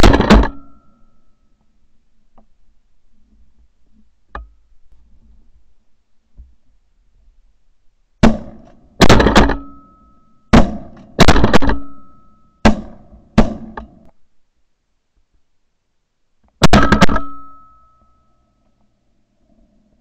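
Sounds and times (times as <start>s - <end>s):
shotgun blasts with echo: 0.0s - 0.7s, 8.2s - 9.8s, 10.5s - 13.8s, 16.6s - 17.6s.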